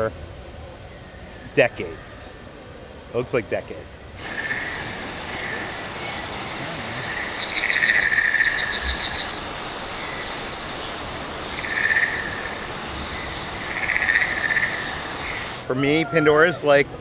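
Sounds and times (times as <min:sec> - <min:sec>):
trilling frog-like calls: 0:04.2 - 0:16.6
small waterfall rushing: 0:04.2 - 0:16.8.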